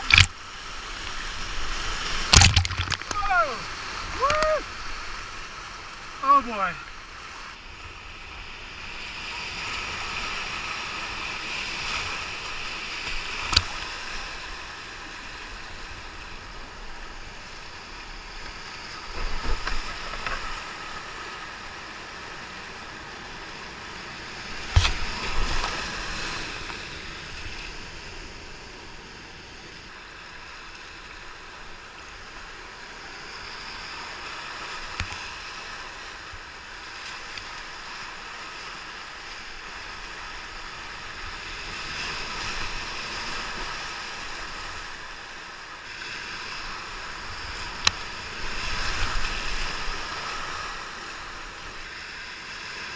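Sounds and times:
rushing whitewater: 0:00.0 - 0:07.5.

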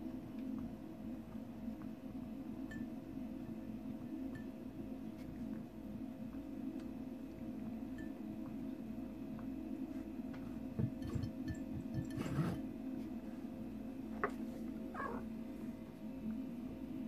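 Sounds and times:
cat eating from metal bowl: 0:10.8 - 0:12.6.

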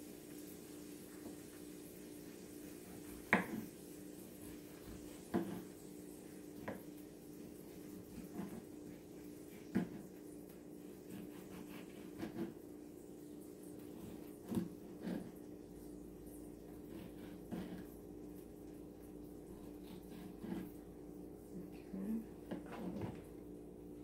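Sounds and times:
knife slicing tomatoes: 0:04.5 - 0:05.8, 0:07.9 - 0:10.2, 0:10.8 - 0:12.6, 0:13.8 - 0:15.4, 0:16.6 - 0:18.4, 0:19.6 - 0:20.8.

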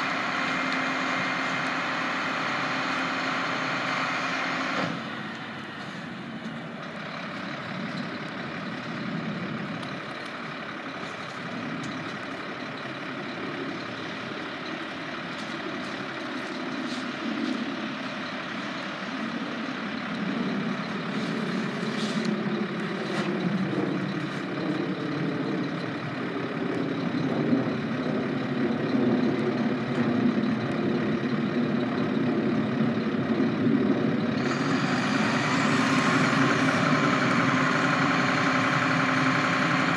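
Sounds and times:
engine revving: 0:00.0 - 0:06.0, 0:06.9 - 0:39.9
diesel engine idling: 0:00.0 - 0:39.9.

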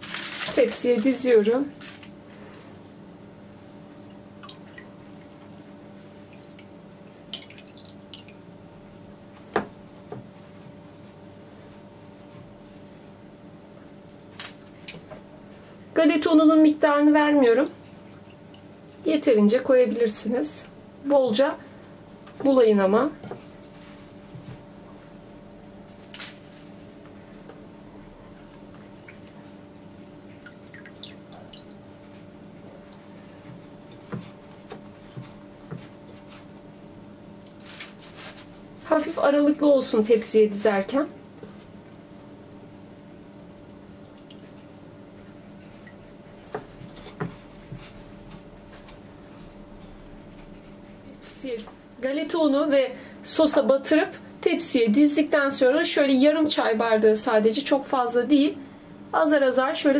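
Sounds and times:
pastry roll rustling: 0:00.0 - 0:02.2, 0:37.4 - 0:39.6
faint steady hum: 0:00.0 - 0:59.9.

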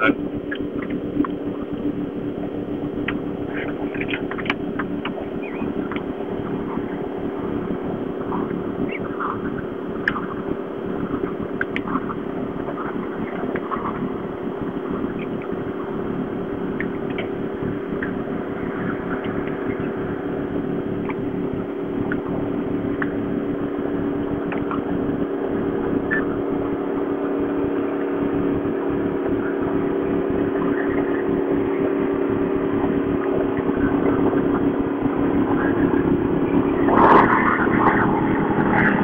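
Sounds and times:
motorboat engine droning: 0:00.0 - 0:39.0.

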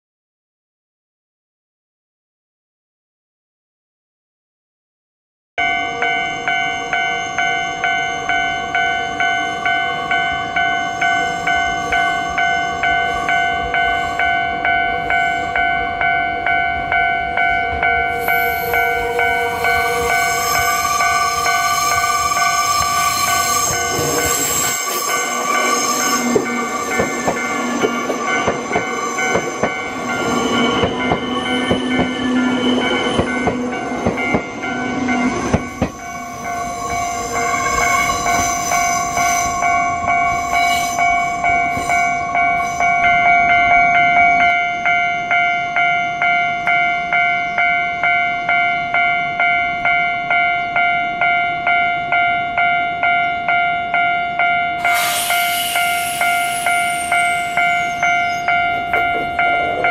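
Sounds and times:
crossing warning bell ringing: 0:05.6 - 0:59.9
train passing: 0:05.6 - 0:59.9
wheels clacking over rail joints: 0:23.9 - 0:36.0.

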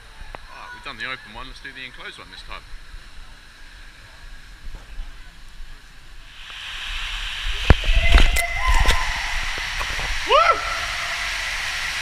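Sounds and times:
water rushing down slide: 0:06.3 - 0:12.0.

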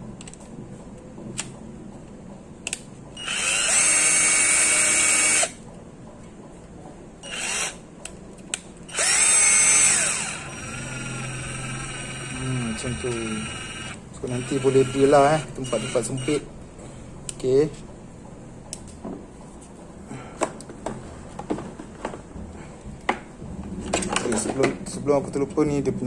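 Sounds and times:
cordless drill motor whining: 0:03.2 - 0:05.6, 0:07.2 - 0:07.8, 0:08.9 - 0:16.5.

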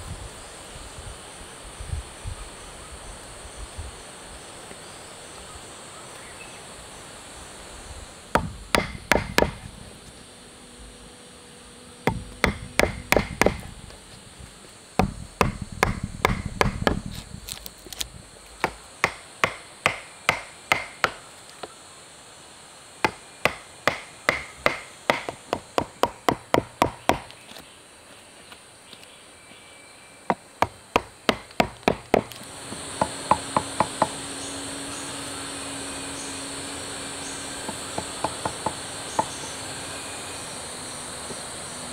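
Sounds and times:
insects buzzing: 0:00.0 - 0:41.9
tool knocking on wood: 0:08.4 - 0:09.7, 0:12.1 - 0:13.7, 0:15.0 - 0:17.2, 0:18.6 - 0:21.2, 0:23.0 - 0:27.3, 0:30.6 - 0:34.2, 0:37.6 - 0:39.3.

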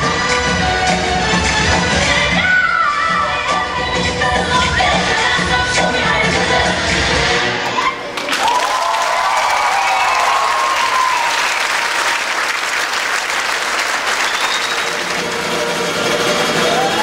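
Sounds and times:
audience applauding: 0:08.1 - 0:17.0.

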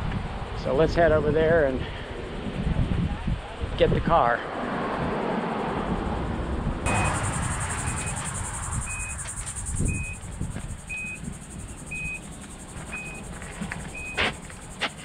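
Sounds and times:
short high beep: 0:06.9 - 0:10.2, 0:10.9 - 0:12.2, 0:12.9 - 0:13.3, 0:13.9 - 0:14.4
high-pitched insect chirring: 0:06.9 - 0:15.0.

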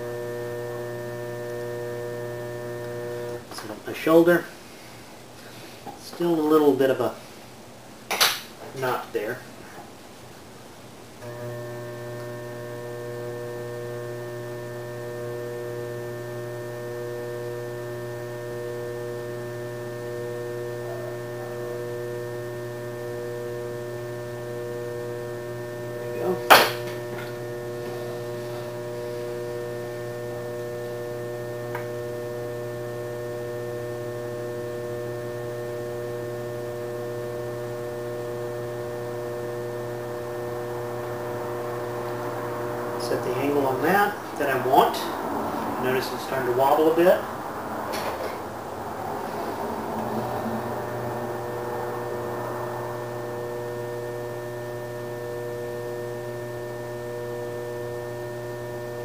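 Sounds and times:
potter's wheel motor humming: 0:00.0 - 0:03.8, 0:11.2 - 0:59.0
sharp knock: 0:26.5 - 0:26.9.

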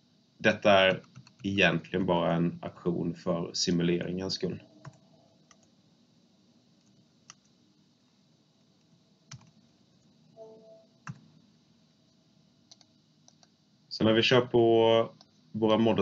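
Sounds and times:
computer clicks: 0:04.8 - 0:05.7, 0:09.3 - 0:09.6, 0:12.7 - 0:13.5.

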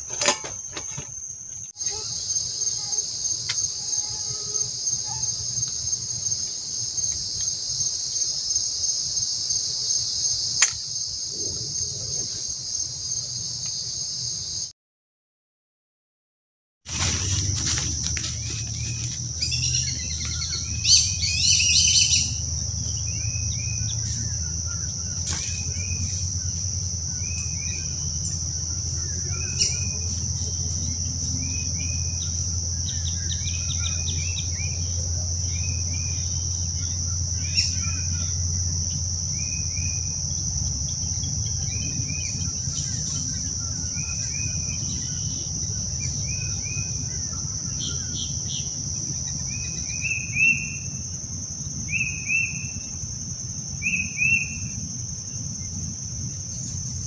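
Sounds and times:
high-pitched insect drone: 0:00.0 - 0:14.7, 0:16.9 - 0:57.0
louder bird calls: 0:16.9 - 0:26.2
bird chirps: 0:17.4 - 0:40.1.

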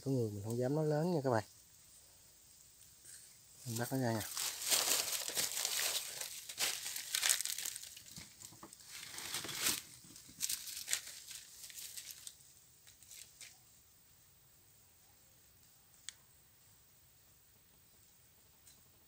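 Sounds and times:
dry leaves crackling and rustling: 0:03.6 - 0:13.5.

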